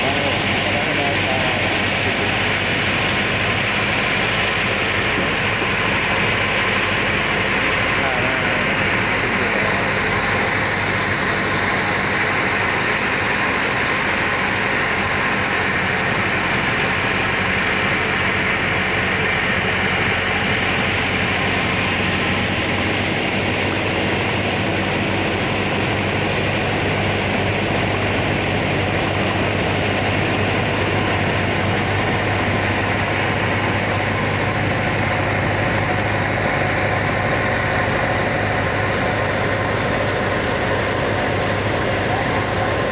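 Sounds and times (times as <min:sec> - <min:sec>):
boat engine humming: 0:00.0 - 0:42.9.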